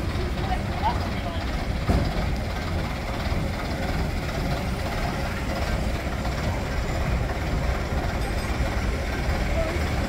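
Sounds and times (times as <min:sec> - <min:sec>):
bus engine and road rumble: 0:00.0 - 0:10.0.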